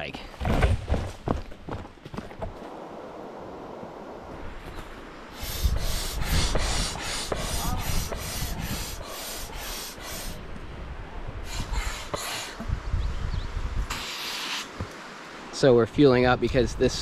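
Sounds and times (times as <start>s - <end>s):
hand air pump hissing strokes: 5.4s - 10.4s, 11.5s - 12.6s, 13.9s - 14.8s.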